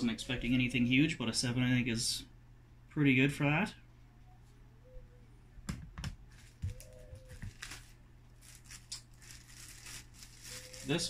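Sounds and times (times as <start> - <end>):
plastic wrap crinkling: 6.3 - 11.0.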